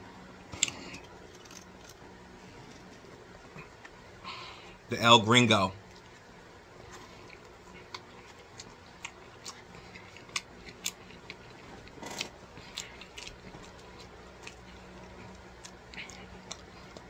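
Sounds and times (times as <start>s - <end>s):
person chewing food: 0.5s - 2.0s, 5.9s - 17.0s.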